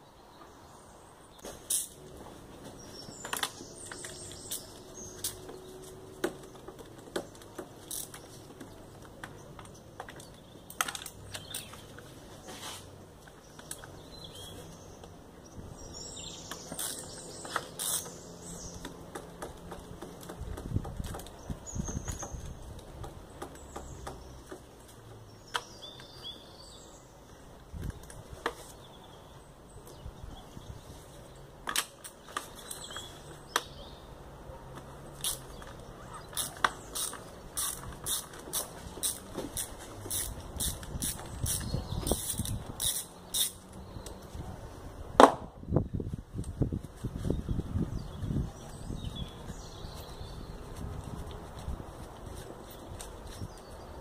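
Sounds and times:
birds chirping: 0.0 - 45.1, 45.7 - 54.0
metal hand tools clicking on bolts: 35.2 - 43.6.

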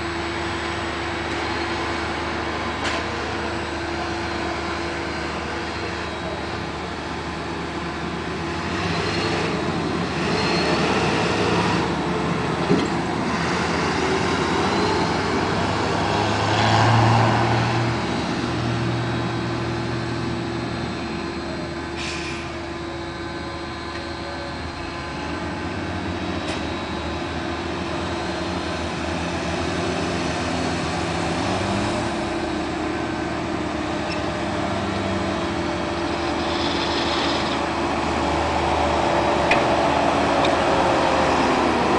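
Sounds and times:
tractor engines running: 0.0 - 41.9
tractor pulling trailer approaching: 0.0 - 41.9.

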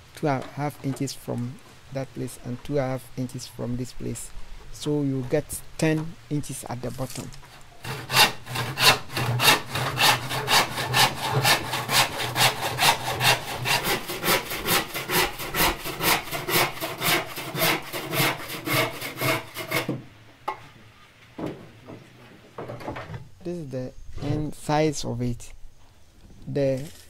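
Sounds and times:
handsaw cutting wood: 7.8 - 20.0.

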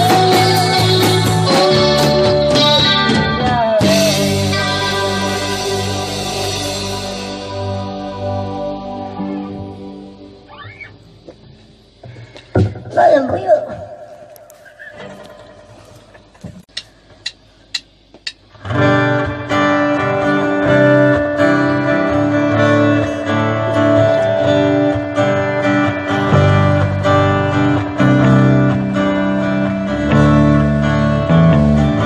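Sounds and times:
band playing guitar song: 0.0 - 11.4, 18.5 - 32.0
sharp count-in clicks: 16.7 - 18.4.

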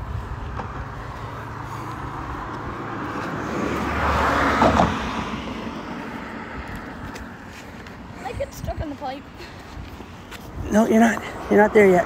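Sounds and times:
car driving past: 0.4 - 7.4.

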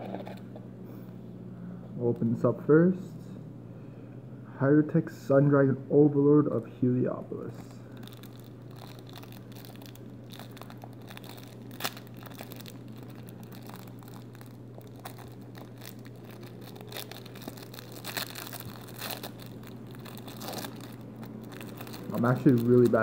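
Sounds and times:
steady low hum: 0.0 - 23.0
plastic wrapper crinkling: 7.9 - 23.0.

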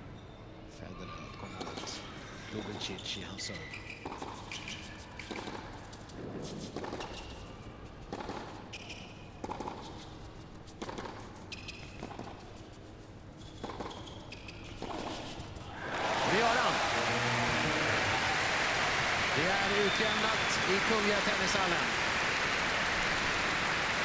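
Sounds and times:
shoes squeaking on court: 1.5 - 16.7.

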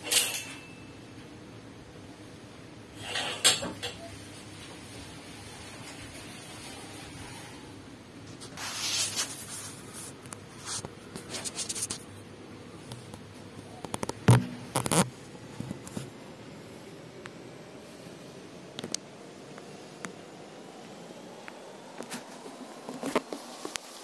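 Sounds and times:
scratchy handling noise: 8.2 - 12.2, 12.8 - 16.1
sharp clicks and knocks: 12.8 - 16.1.

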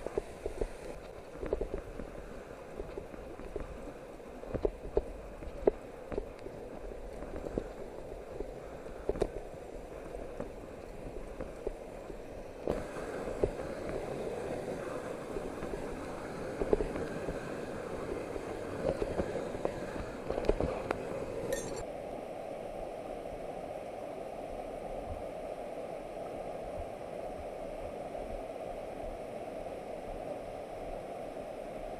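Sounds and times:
metal gear clinking against rock: 21.5 - 21.8.

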